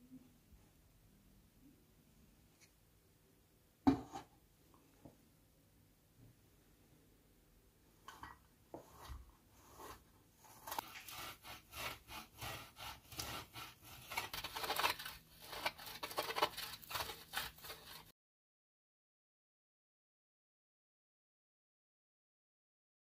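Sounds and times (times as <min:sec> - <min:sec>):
cheese grating on metal grater: 0:08.8 - 0:18.1.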